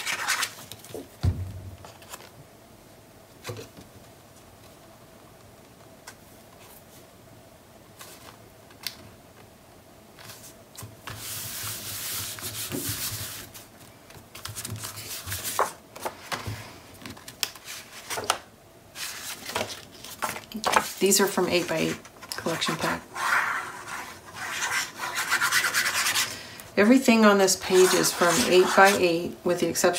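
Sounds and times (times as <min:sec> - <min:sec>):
paper rustling and sliding: 0:14.4 - 0:26.3.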